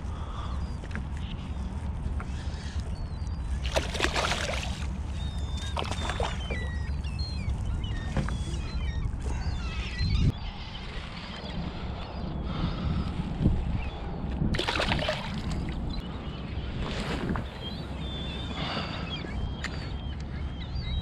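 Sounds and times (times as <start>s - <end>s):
chirping bird calls: 2.3s - 13.2s
fish splashing at the surface: 3.6s - 4.9s, 14.6s - 15.6s.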